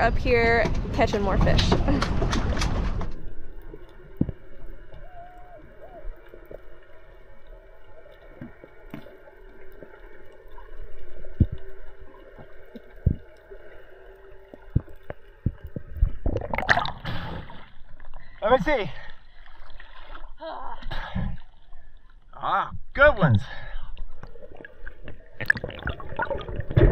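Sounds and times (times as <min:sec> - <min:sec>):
steady underwater hum: 0:00.0 - 0:26.9
underwater clicks and knocks: 0:00.2 - 0:05.1, 0:08.3 - 0:09.2, 0:11.3 - 0:13.5, 0:14.5 - 0:17.0.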